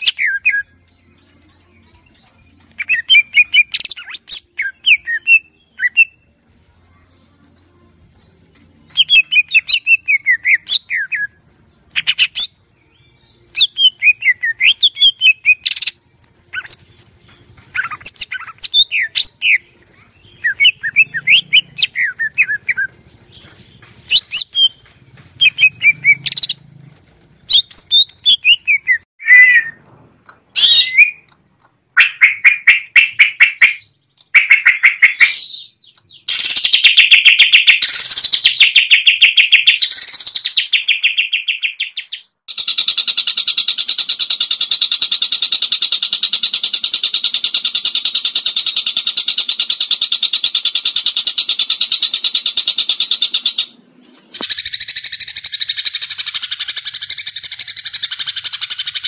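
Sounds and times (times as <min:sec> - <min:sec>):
bird singing whistled phrases: 0:00.0 - 0:00.8, 0:02.8 - 0:06.3, 0:08.9 - 0:11.4, 0:12.0 - 0:16.8, 0:17.7 - 0:22.9, 0:27.5 - 0:29.8, 0:30.6 - 0:31.3
bird rattling trills: 0:20.4 - 0:29.0, 0:42.5 - 0:53.8.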